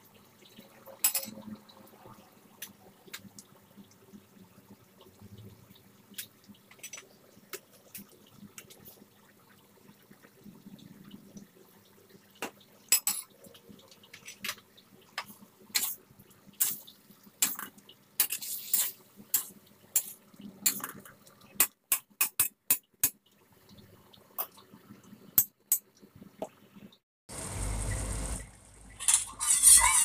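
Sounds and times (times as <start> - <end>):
metal spatula scraping wok: 29.0 - 30.0.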